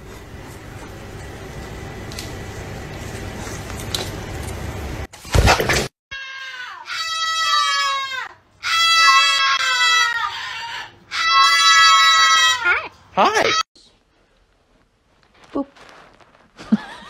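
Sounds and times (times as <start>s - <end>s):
caged animal calling: 6.2s - 13.6s.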